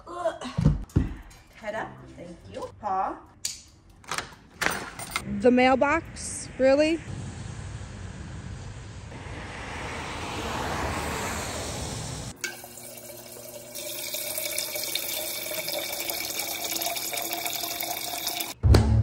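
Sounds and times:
outdoor background noise: 0.0 - 18.5
water streaming into steel tumbler: 12.4 - 18.6.

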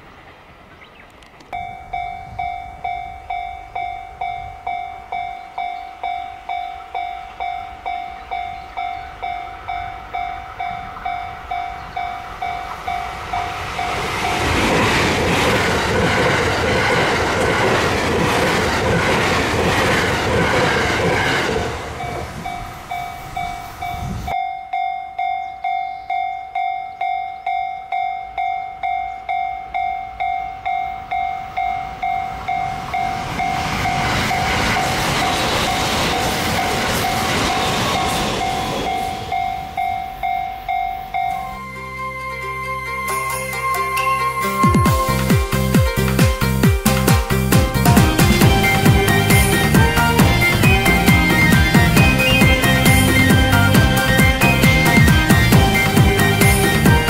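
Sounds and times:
passing train rush: 0.0 - 57.0
level-crossing warning bell: 1.5 - 57.0
train wheels clickety-clack: 12.5 - 24.4, 32.3 - 39.8, 44.8 - 57.0.

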